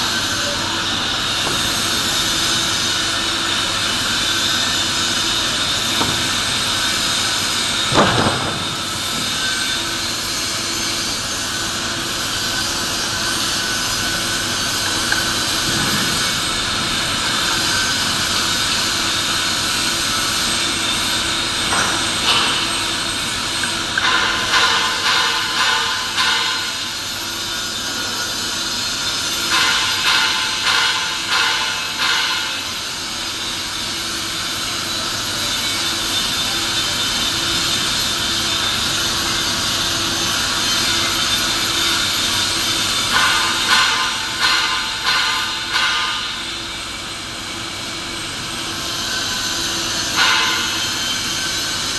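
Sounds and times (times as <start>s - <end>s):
scraping strokes on steel pipe: 48.7s - 51.9s.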